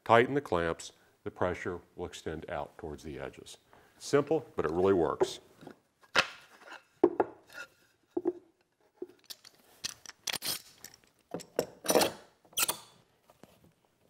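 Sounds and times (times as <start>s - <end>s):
wooden cauls knocking: 7.0s - 7.4s.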